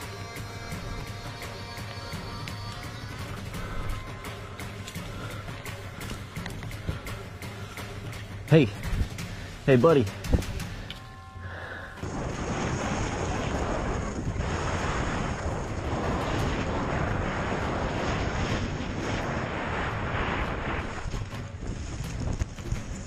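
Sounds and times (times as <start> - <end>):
snow hissing under skis: 12.0 - 23.0
wind rushing over microphone: 12.0 - 23.0.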